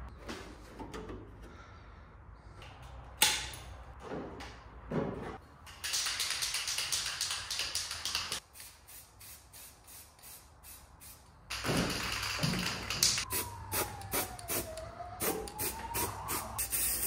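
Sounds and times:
spray can rattling while shaken: 0:05.8 - 0:13.2.

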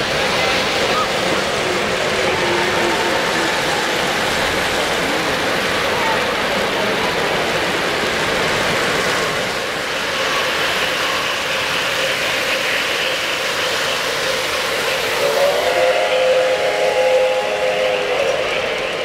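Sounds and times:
model train steam whistle: 0:14.8 - 0:19.0.

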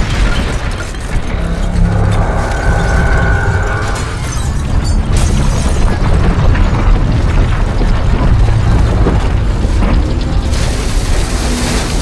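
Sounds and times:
deep rumble: 0:00.0 - 0:12.0
falling debris crashing: 0:00.0 - 0:12.0.

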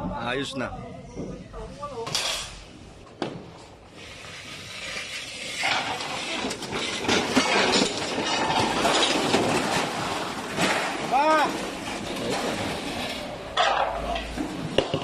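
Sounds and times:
rollers rumbling and clattering: 0:00.0 - 0:15.0.

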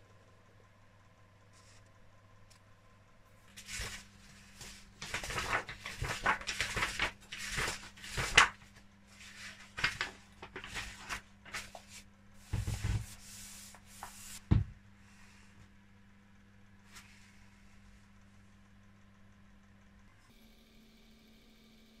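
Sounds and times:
book pages turning: 0:03.5 - 0:14.4
pages pressed flat thump: 0:12.5 - 0:13.2, 0:14.0 - 0:14.8.

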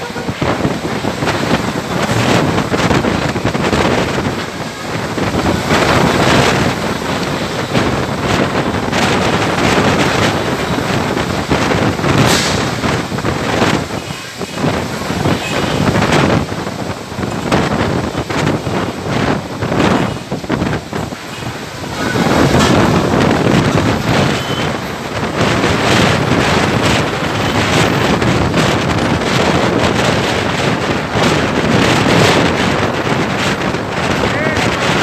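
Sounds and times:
heavy rain: 0:00.0 - 0:35.0
wind buffeting microphone: 0:00.0 - 0:35.0.

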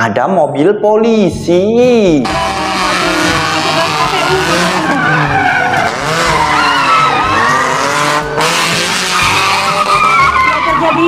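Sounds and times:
car engine revving: 0:02.1 - 0:11.0
tyres squealing: 0:02.2 - 0:11.0.

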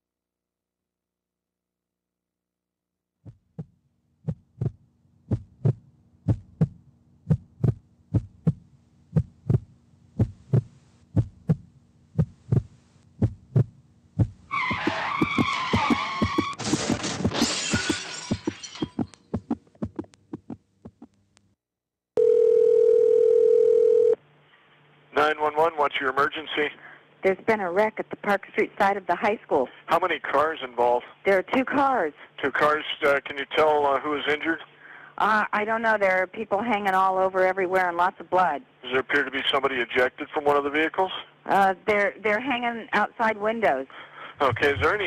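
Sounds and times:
heartbeat double thumps: 0:03.2 - 0:17.0, 0:18.4 - 0:21.2, 0:44.4 - 0:45.0
heart monitor flatline tone: 0:04.3 - 0:08.6, 0:09.2 - 0:16.6
tyres screeching: 0:14.5 - 0:16.7
car crash: 0:14.9 - 0:18.8.

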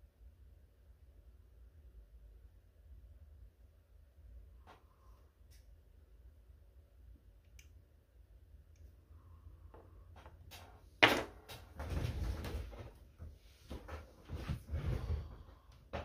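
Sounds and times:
rustling and scraping: 0:09.7 - 0:16.0.

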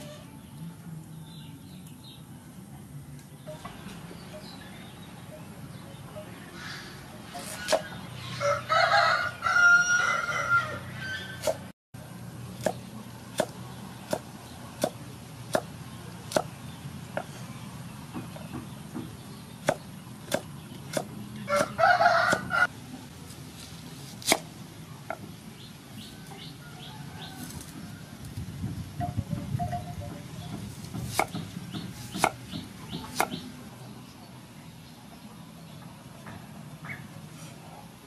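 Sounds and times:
rooster crowing: 0:08.3 - 0:11.4, 0:21.5 - 0:22.7, 0:26.1 - 0:28.2
cleaver chopping on wooden board: 0:12.6 - 0:15.7, 0:16.3 - 0:17.3, 0:18.2 - 0:22.5, 0:24.2 - 0:24.5, 0:30.5 - 0:33.4.

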